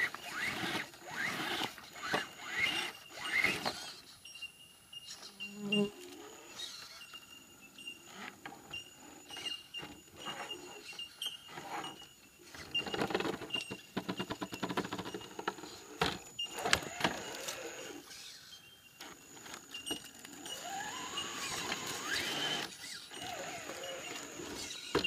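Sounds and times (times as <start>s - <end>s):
electric motor whining: 0.0s - 4.1s, 15.5s - 18.4s, 19.0s - 25.0s
tyres and chassis scraping on rock: 0.0s - 4.2s, 7.8s - 25.0s.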